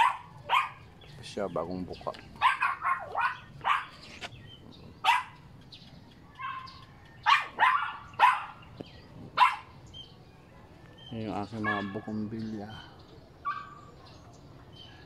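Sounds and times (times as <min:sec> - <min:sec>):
dog barking: 0:00.0 - 0:00.9, 0:02.4 - 0:04.0, 0:05.0 - 0:05.4, 0:06.4 - 0:08.7, 0:09.4 - 0:09.8, 0:11.6 - 0:12.2, 0:13.4 - 0:14.2.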